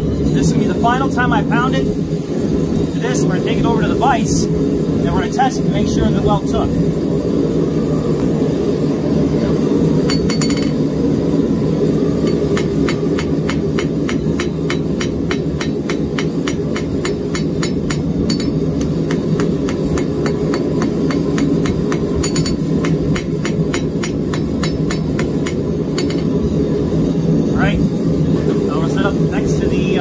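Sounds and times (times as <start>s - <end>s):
hammer striking steel on anvil: 10.1s - 10.8s, 12.2s - 26.4s.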